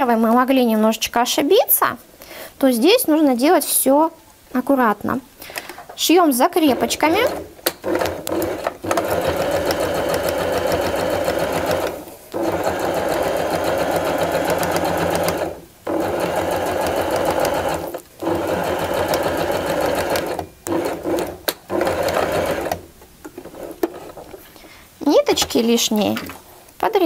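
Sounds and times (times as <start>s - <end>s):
sewing machine stitching: 6.7s - 22.8s.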